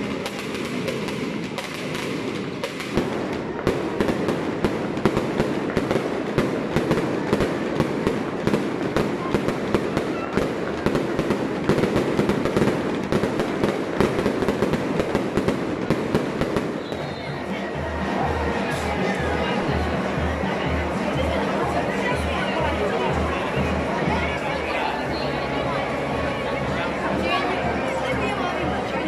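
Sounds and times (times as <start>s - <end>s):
firecrackers crackling: 0.0s - 20.3s.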